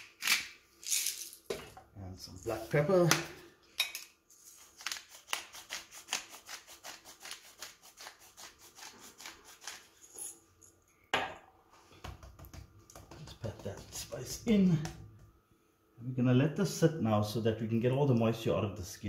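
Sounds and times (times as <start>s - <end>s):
pepper mill grinding: 0.2s - 1.5s.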